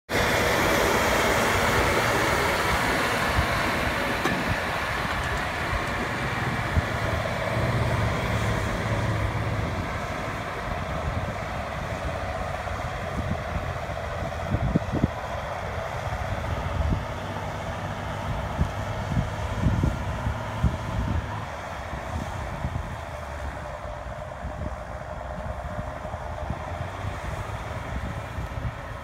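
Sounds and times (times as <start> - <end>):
tractor diesel engine under load: 0.1 - 29.0.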